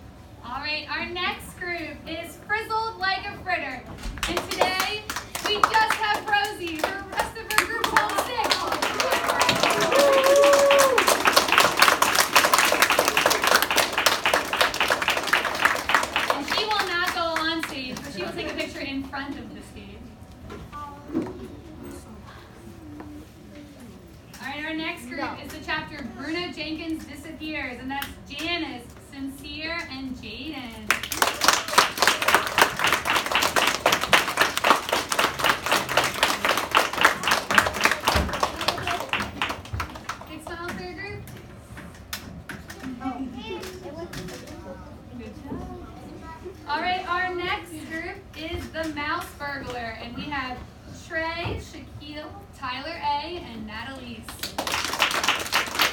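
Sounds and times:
children clapping: 4.2 - 18.1, 30.9 - 40.4, 54.4 - 55.9
person cheering: 8.9 - 11.3.

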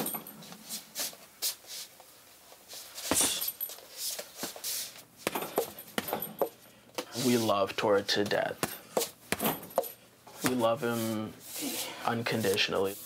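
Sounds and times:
punches on a heavy bag: 3.1 - 3.6.

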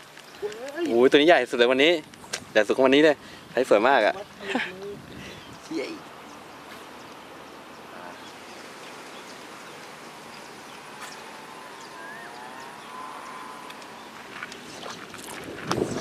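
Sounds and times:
faint ticks: 0.0 - 1.2, 13.0 - 14.7
outdoor background noise: 0.0 - 16.0.

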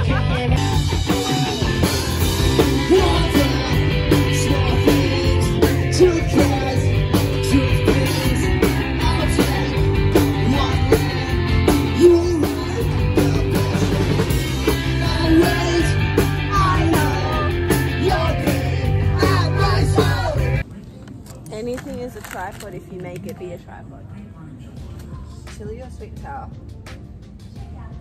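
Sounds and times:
bass guitar: 0.0 - 20.6
electric guitar: 0.0 - 20.6
person singing: 0.0 - 20.6
drums: 0.0 - 20.7, 24.7 - 28.0.

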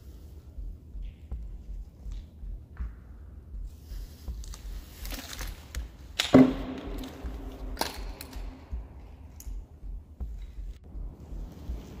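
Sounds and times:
sharp knock: 6.2 - 9.0.

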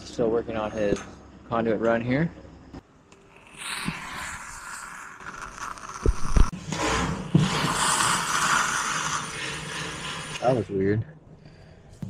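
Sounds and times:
weld charge hissing and fizzing: 3.2 - 10.6.

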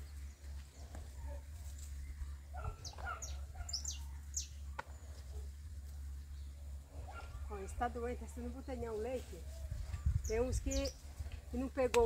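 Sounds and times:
poultry clucking: 2.5 - 5.4.

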